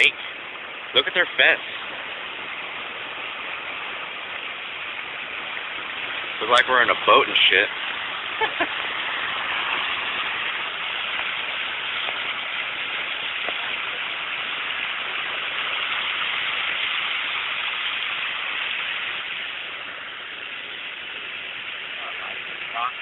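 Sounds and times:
car driving through floodwater: 0.0 - 23.0
water spraying and churning: 0.0 - 23.0.

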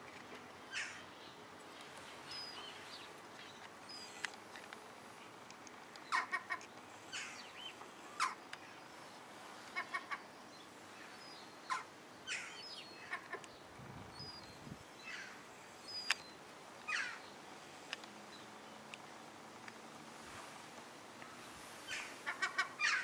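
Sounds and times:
gulls calling: 2.2 - 13.6, 14.2 - 17.4, 21.8 - 23.0.

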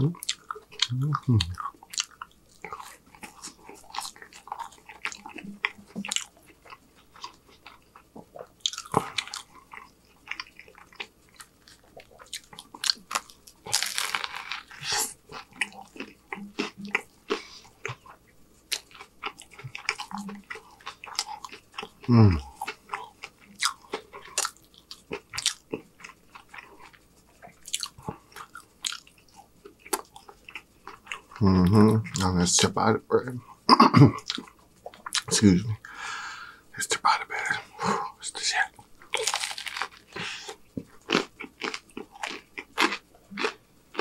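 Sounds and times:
wet chewing: 0.2 - 31.4
crisp crunching bites: 12.9 - 14.8, 39.2 - 40.3.

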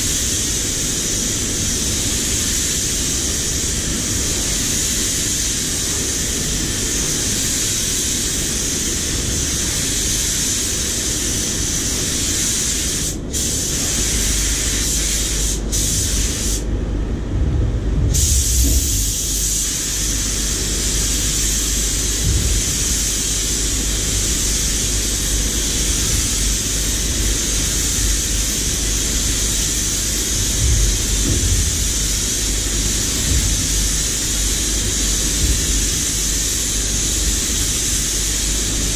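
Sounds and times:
spray gun hissing: 0.0 - 16.7, 18.1 - 38.9
low rumble: 16.1 - 19.5, 30.2 - 36.2.

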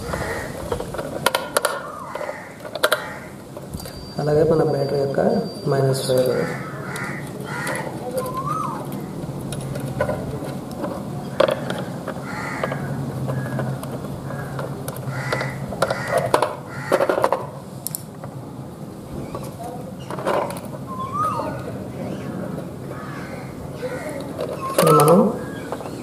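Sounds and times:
crows cawing: 0.0 - 3.5, 6.2 - 9.2, 11.3 - 17.5, 22.8 - 25.8.

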